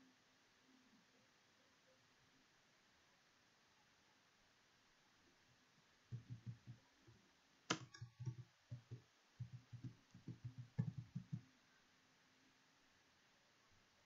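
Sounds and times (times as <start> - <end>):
keyboard typing: 6.1 - 6.8, 7.7 - 11.4.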